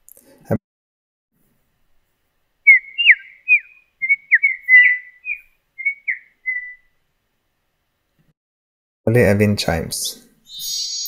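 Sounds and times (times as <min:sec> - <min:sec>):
bird-chirp alert sound: 0:10.5 - 0:11.0.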